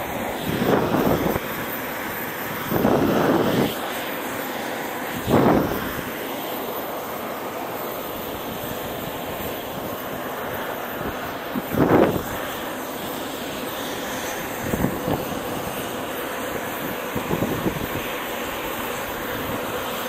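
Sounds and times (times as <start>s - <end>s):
aircraft engine noise: 0.0s - 20.0s
wind buffeting microphone: 0.1s - 3.8s, 5.1s - 6.2s, 8.3s - 12.6s, 14.4s - 20.0s.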